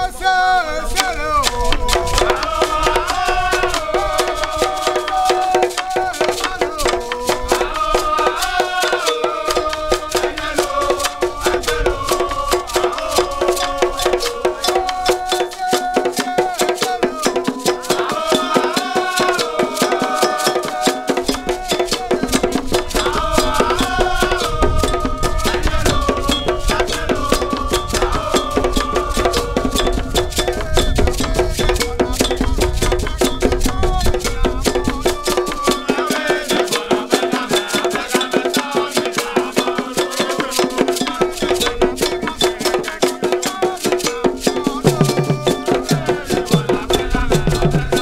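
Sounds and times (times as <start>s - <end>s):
men singing together: 0.0s - 48.0s
iron bell pattern: 3.6s - 48.0s
barrel drums: 15.9s - 37.9s, 40.4s - 48.0s.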